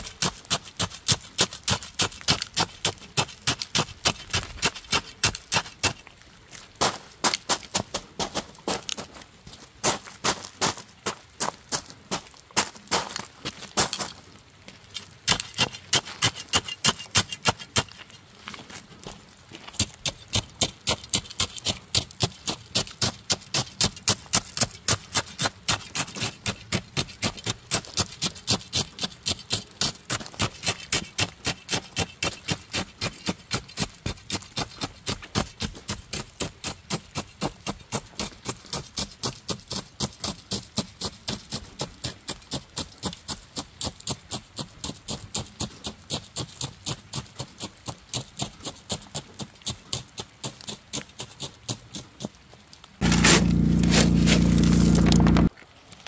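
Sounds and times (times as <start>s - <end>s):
steel bar crunching into stone: 53.0s - 55.5s.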